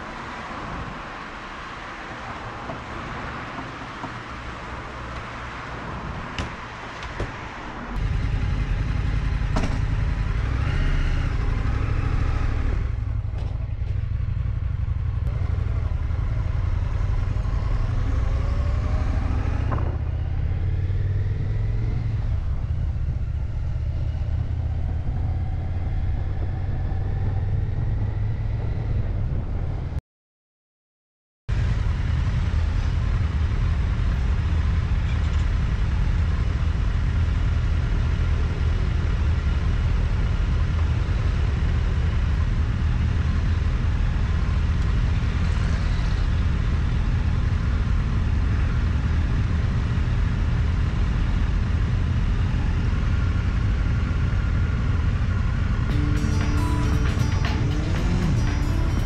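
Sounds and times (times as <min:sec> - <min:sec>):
motorcycle engine rumbling: 0:08.0 - 0:18.2.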